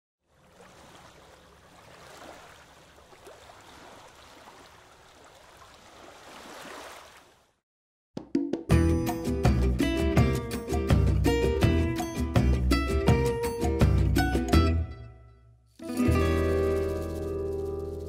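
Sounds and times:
river water lapping: 0.2 - 7.6.

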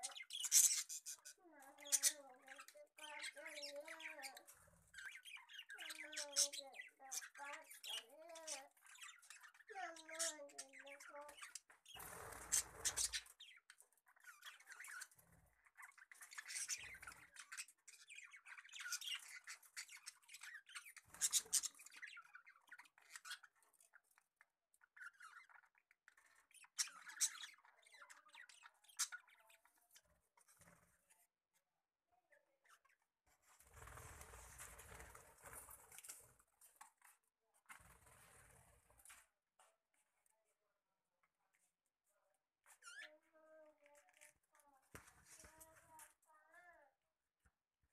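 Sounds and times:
budgerigars chirping and chattering: 0.0 - 24.1, 24.8 - 30.7.

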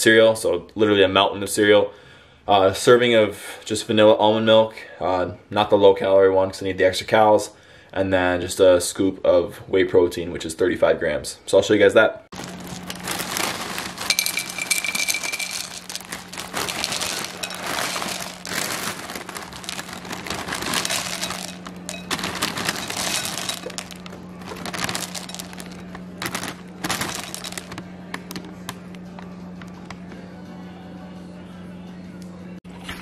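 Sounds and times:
plastic bag crinkling: 12.3 - 28.4
cereal rattling into glass bowl: 12.4 - 27.8.

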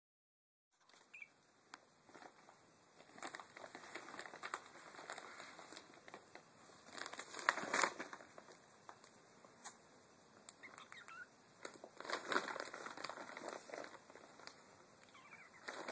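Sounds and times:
plastic bag rustling: 2.0 - 9.0, 11.6 - 15.9.

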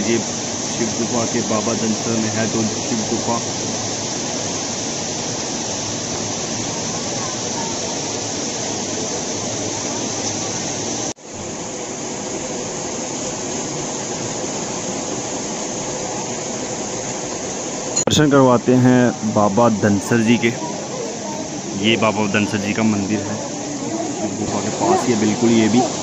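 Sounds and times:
flowing water rushing: 0.0 - 26.0.

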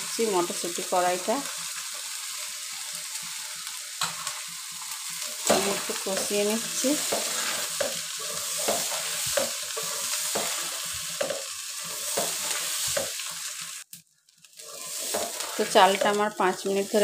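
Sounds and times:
rice sizzling in a pot: 0.0 - 17.0
wooden spatula scraping a pot: 5.4 - 13.3, 14.6 - 16.2.

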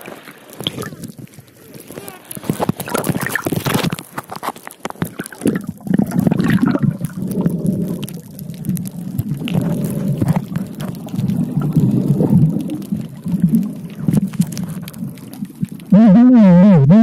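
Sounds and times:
underwater clicks and crackles: 0.0 - 16.4
muffled underwater rushing: 0.0 - 17.0.

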